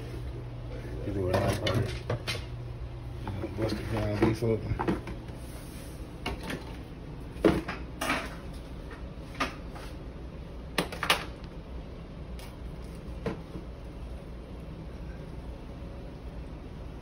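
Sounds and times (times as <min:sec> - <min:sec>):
low hum: 0:11.4 - 0:17.0.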